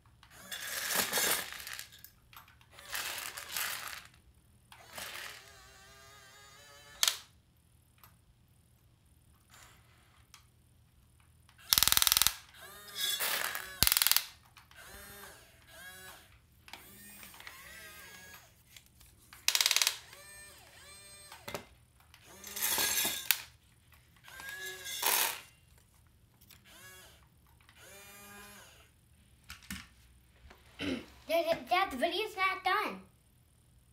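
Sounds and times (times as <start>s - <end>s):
toy excavator motors whining: 0.2s - 7.4s, 9.4s - 10.5s, 11.5s - 25.6s, 26.4s - 29.0s
dry beans rattling into plastic tub: 0.5s - 2.0s, 2.9s - 4.2s.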